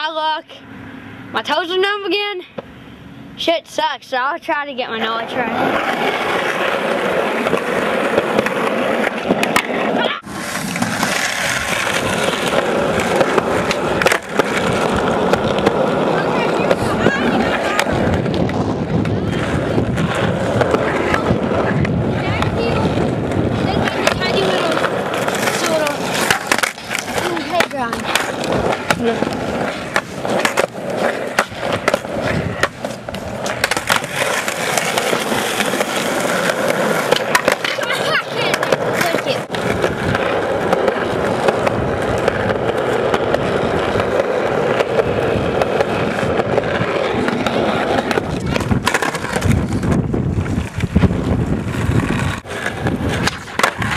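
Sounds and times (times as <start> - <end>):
skateboard wheels rumbling on concrete: 3.4 - 53.9
skateboard clacking on ground: 5.0 - 53.9.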